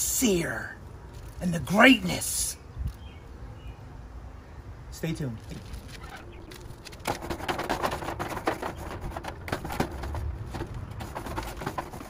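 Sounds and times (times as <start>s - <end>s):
utensil scraping metal grill grate: 5.6s - 12.0s.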